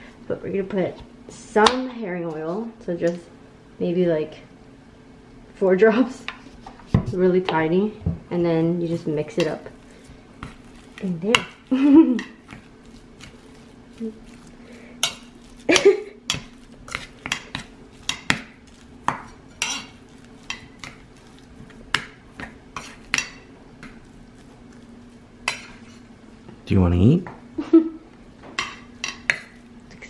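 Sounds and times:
utensil scraping metal bowl: 16.3s - 24.8s.

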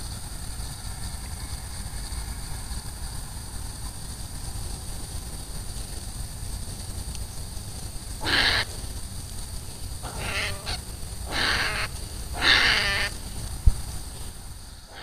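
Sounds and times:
low steady rumble: 0.0s - 15.0s
hedgehog screaming: 8.2s - 8.7s, 10.1s - 13.1s.

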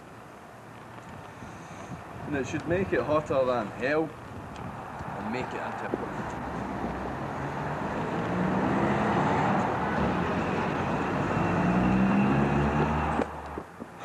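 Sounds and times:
vehicle driving past: 6.4s - 13.4s.

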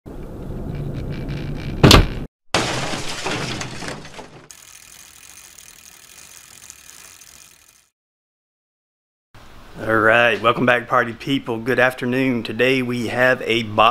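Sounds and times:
glass shattering crash: 2.5s - 4.5s.

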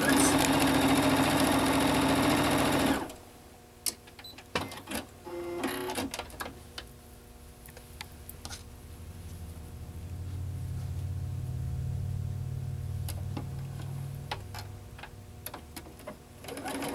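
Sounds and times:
sewing machine running: 0.0s - 3.2s, 16.4s - 16.9s.

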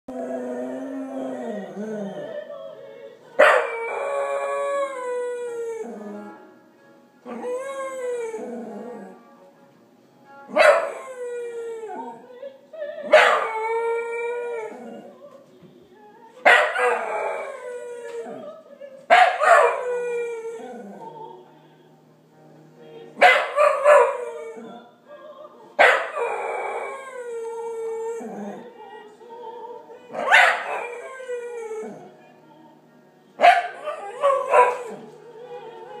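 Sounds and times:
dog howling: 0.1s - 2.4s, 3.4s - 6.5s, 7.2s - 9.2s, 10.5s - 12.4s, 13.0s - 15.2s, 16.4s - 21.4s, 23.2s - 24.9s, 25.8s - 28.8s, 30.1s - 32.2s, 33.4s - 36.0s
opera music from speakers: 0.1s - 36.0s
dog barking: 3.4s - 3.7s, 10.5s - 10.9s, 13.1s - 13.5s, 16.5s - 17.1s, 19.1s - 19.8s, 23.2s - 24.2s, 25.8s - 26.3s, 30.2s - 30.8s, 33.4s - 35.0s.

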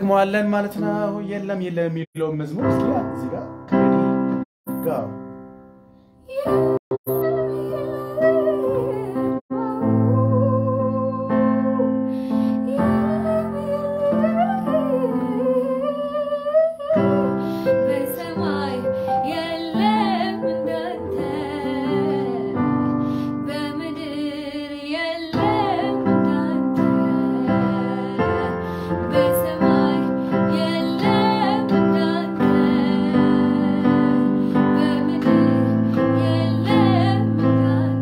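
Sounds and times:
electronic keyboard chords: 0.0s - 23.9s
woman singing: 6.3s - 38.0s.

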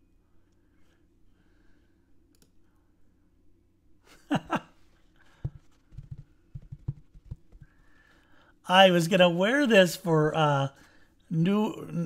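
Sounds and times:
soft handling bumps and knocks: 5.3s - 7.8s.

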